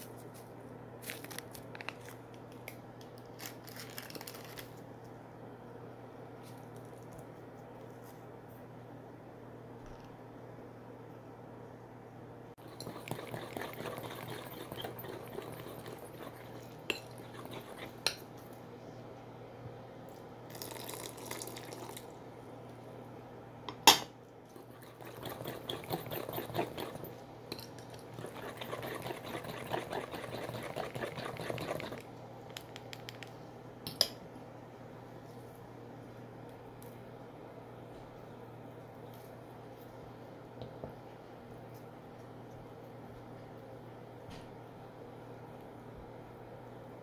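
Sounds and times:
wire whisk scraping glass bowl: 12.6s - 18.2s, 24.6s - 27.2s, 28.2s - 32.0s.

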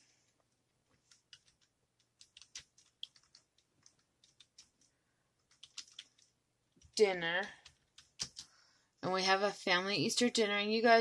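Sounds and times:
keyboard keystrokes: 1.1s - 8.5s.

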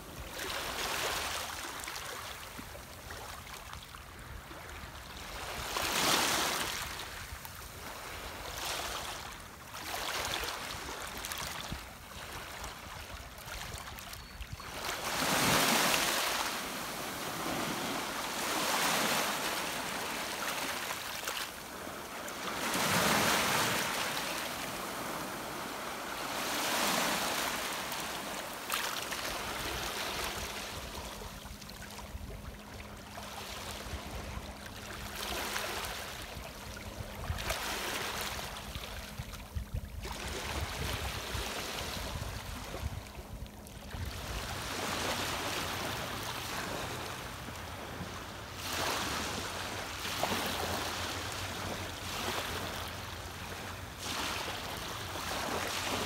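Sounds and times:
waves washing over pebbles: 15.0s - 30.4s.

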